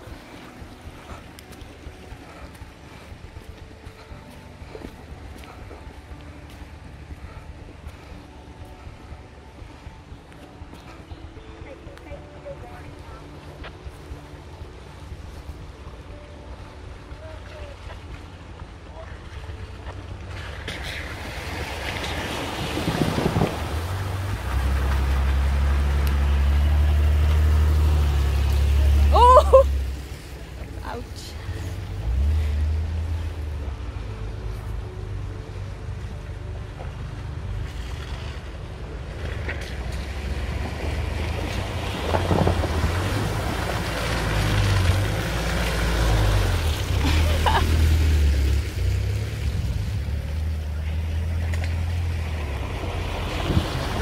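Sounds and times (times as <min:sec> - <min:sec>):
vehicle engine rumble: 0:00.0 - 0:54.0
water splashing around wheels: 0:00.0 - 0:54.0
tyres on gravel: 0:36.7 - 0:54.0.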